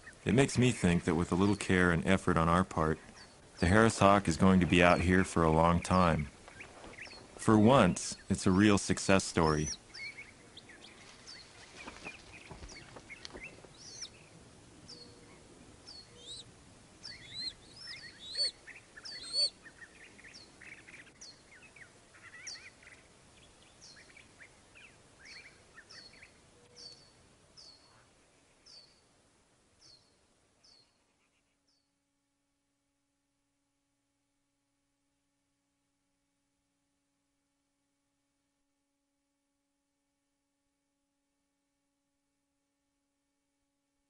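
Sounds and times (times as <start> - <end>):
high down-slurred bird chirp: 1.4 - 29.1, 29.8 - 32.0
soft bird chirps: 2.8 - 8.4, 9.4 - 29.2, 29.8 - 32.0.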